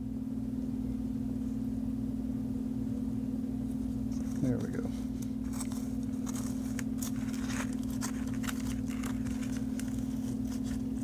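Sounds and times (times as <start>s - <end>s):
steady low hum: 0.0s - 11.0s
potting mix crackling: 3.7s - 11.0s
plastic cup handled: 5.4s - 11.0s.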